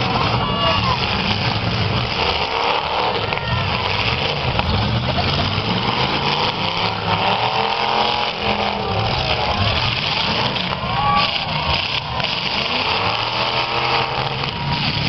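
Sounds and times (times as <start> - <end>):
car engines revving: 0.0 - 15.0.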